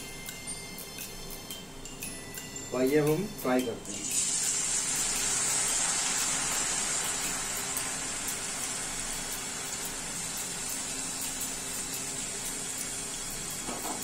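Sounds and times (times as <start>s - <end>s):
potato sizzling in hot oil: 3.9s - 14.0s.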